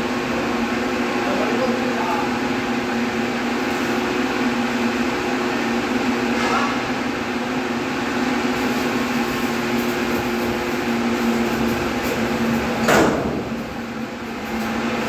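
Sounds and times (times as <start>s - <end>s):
steady mechanical hum: 0.0s - 15.0s
loud knock: 12.9s - 13.4s.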